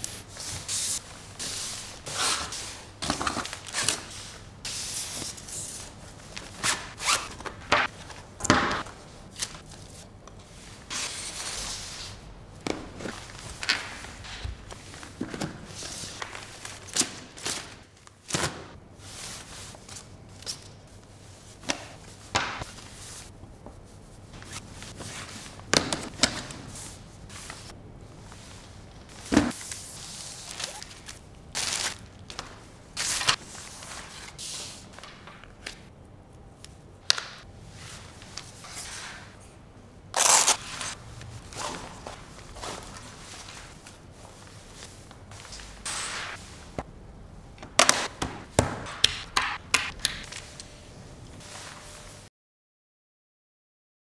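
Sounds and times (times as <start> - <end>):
cardboard and packaging rustling: 40.2 - 45.9.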